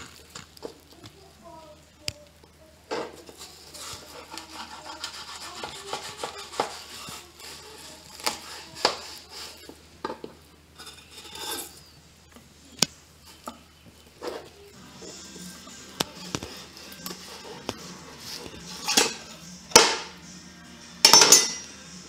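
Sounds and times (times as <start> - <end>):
knife sawing through fish: 3.6 - 9.7.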